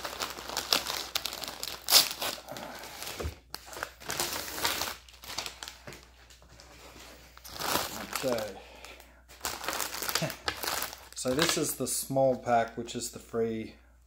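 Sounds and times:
paper wrapping tearing: 0:00.0 - 0:03.0
plastic packets crinkling: 0:00.0 - 0:12.7.

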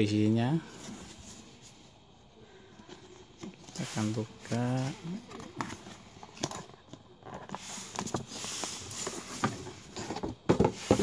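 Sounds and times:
item sliding out of box: 0:07.3 - 0:11.0
cardboard box flaps rustling: 0:07.5 - 0:11.0.

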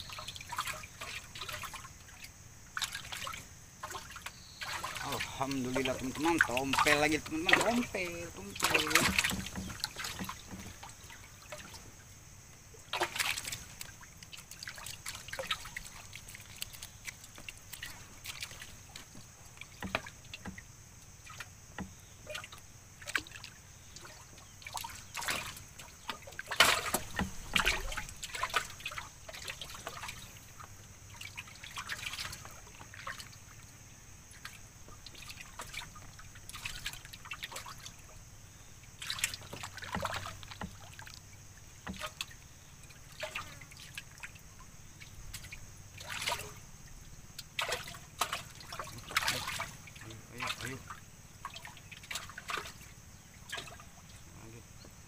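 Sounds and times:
steady high hiss: 0:00.0 - 0:36.5
paddle splashing water: 0:00.0 - 0:55.0.

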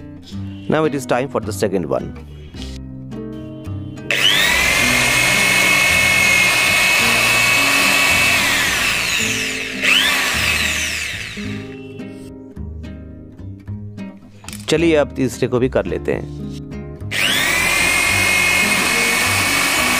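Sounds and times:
electric drill motor whining: 0:04.1 - 0:11.9, 0:17.1 - 0:19.9.

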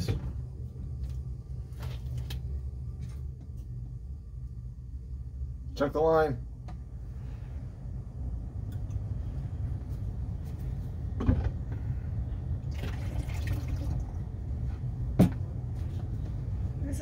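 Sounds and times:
low steady hum: 0:00.0 - 0:17.0
water pouring: 0:12.6 - 0:14.2.

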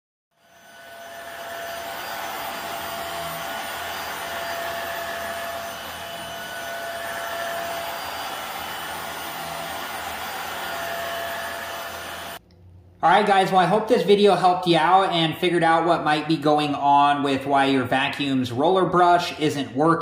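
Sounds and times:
vacuum cleaner running over carpet: 0:00.4 - 0:12.4.

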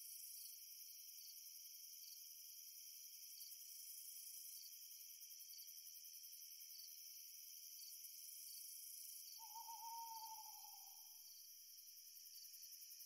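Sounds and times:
crickets chirping: 0:00.0 - 0:13.0
owl hooting: 0:09.4 - 0:11.0.

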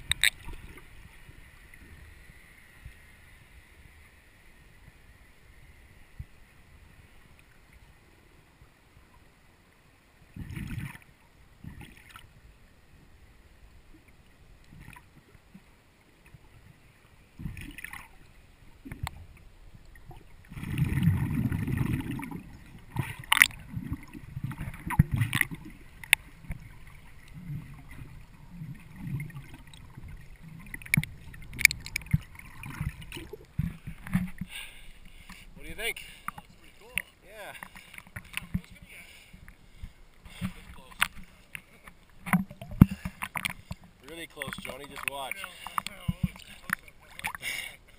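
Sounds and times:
sharp clicks and knocks: 0:00.0 - 0:00.5, 0:30.8 - 0:32.2
underwater water surges and bubbles: 0:00.0 - 0:47.9.

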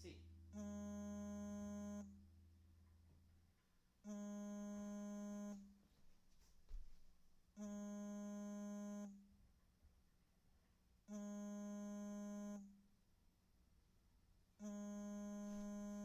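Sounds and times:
faint electronic buzzing tone: 0:00.0 - 0:02.6, 0:04.0 - 0:05.8, 0:07.6 - 0:09.2, 0:11.1 - 0:12.8, 0:14.6 - 0:16.0.

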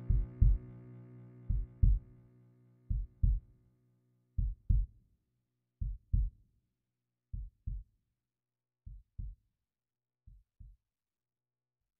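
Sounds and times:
heartbeat thumps: 0:00.0 - 0:00.7, 0:01.5 - 0:02.0, 0:02.9 - 0:03.4, 0:04.4 - 0:04.9, 0:05.8 - 0:06.3, 0:07.4 - 0:07.8, 0:08.9 - 0:09.4.

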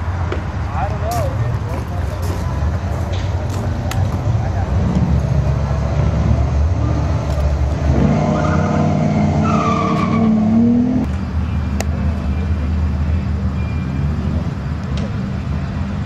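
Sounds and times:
car engine accelerating hard: 0:04.1 - 0:11.2.

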